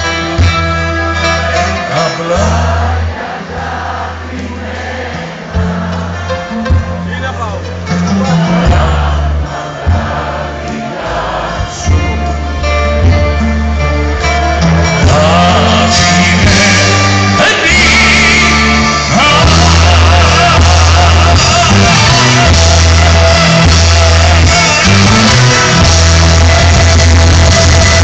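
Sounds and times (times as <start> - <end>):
live band playing: 0.0 - 28.0
man singing: 1.5 - 3.0, 7.9 - 9.5, 10.6 - 13.1, 14.9 - 27.1.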